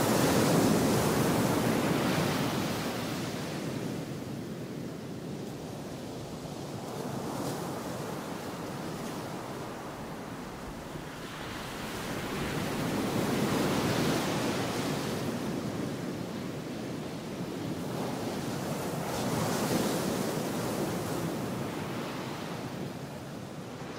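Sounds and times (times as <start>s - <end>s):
ocean waves surging: 8.2s - 15.4s.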